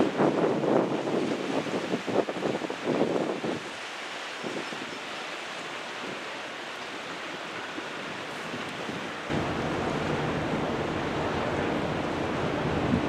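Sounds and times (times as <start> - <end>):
water rushing along a ship hull: 0.0 - 13.0
wind on microphone: 0.0 - 13.0.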